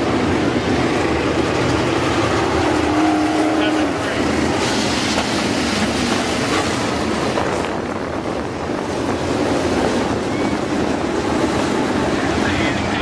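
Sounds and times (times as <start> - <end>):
race car engines roaring: 0.0 - 8.8.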